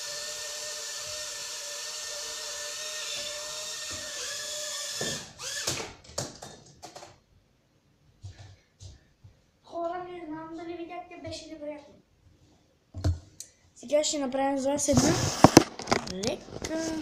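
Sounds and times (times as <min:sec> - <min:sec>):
toy drone motors whining: 0:00.0 - 0:05.8.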